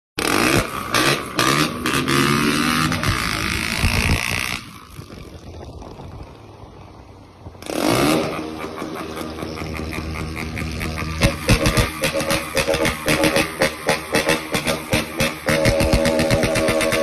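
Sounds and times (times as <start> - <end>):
motorcycle engine revving: 0.2 - 17.0
wind noise on microphone: 2.8 - 8.2.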